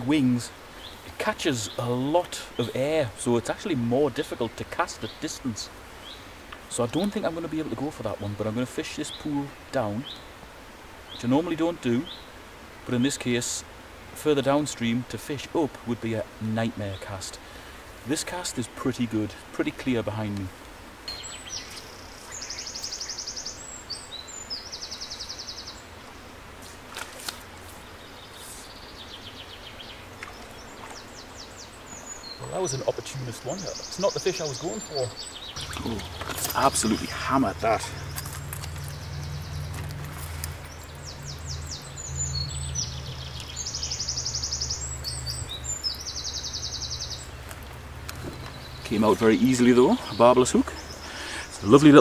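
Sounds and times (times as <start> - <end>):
songbird trilling: 21.1 - 25.8, 27.8 - 52.0
flowing river water: 35.6 - 44.2.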